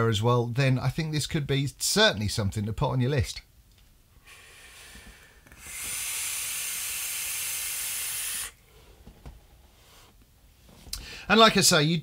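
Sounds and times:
air hissing through vape: 4.2s - 8.7s.

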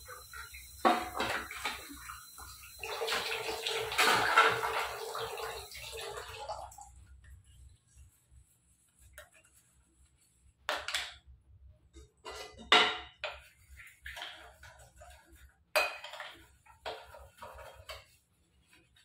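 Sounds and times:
scouring pad scrubbing utensils: 0.0s - 8.1s, 13.2s - 19.0s.

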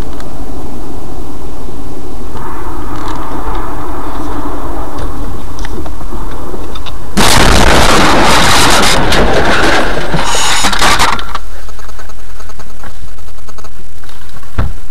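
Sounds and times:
low steady hum: 0.0s - 14.9s
car crash: 2.4s - 11.4s.

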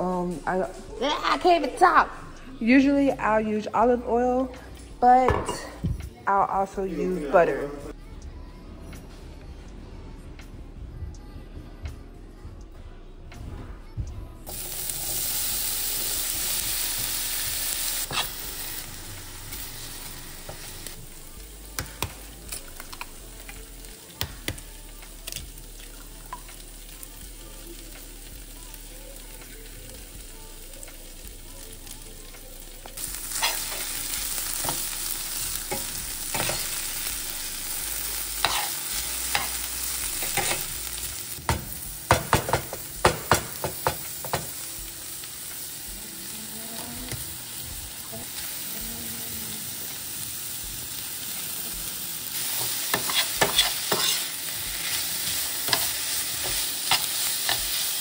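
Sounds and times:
food sizzling in a pan: 14.5s - 58.0s.

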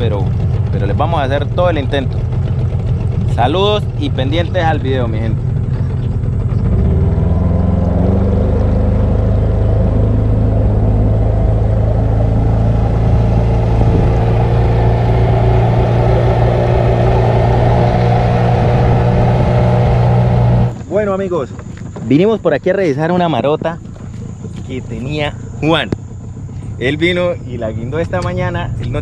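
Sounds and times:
outboard motor droning: 0.0s - 29.0s.

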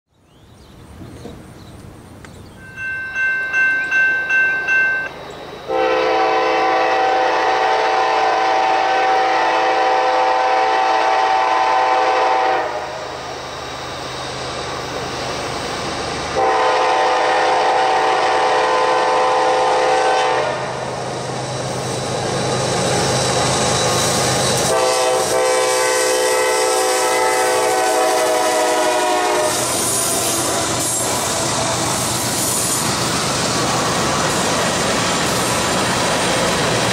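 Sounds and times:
locomotive engines rumbling: 0.8s - 36.9s
pulsing ringing tones: 2.6s - 6.0s
locomotive air horn blasts: 5.7s - 13.0s, 16.4s - 20.8s, 24.6s - 31.2s.

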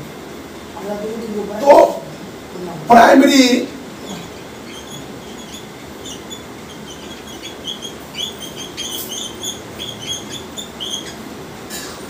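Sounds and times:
marker squeaking on whiteboard: 4.0s - 11.3s.

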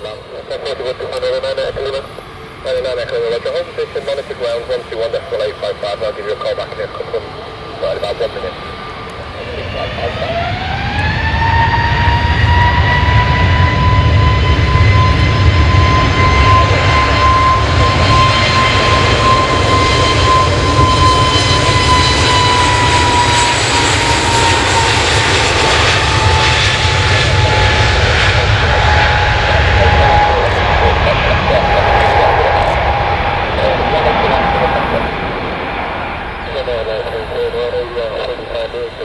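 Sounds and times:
jet engines whining: 0.0s - 39.0s
deep engine rumble: 11.9s - 39.0s.

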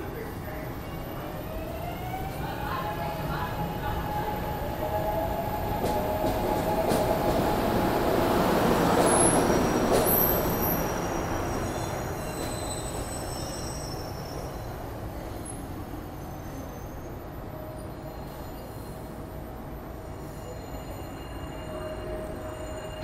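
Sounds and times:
train rumbling on rails: 0.0s - 23.0s
train wheel squeals: 8.8s - 19.3s, 20.1s - 23.0s.

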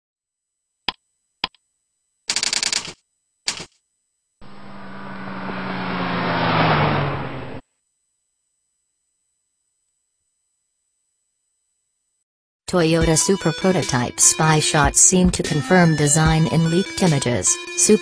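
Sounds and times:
sharp clicks: 2.3s - 3.7s
rush of noise with low tone: 4.4s - 7.6s.

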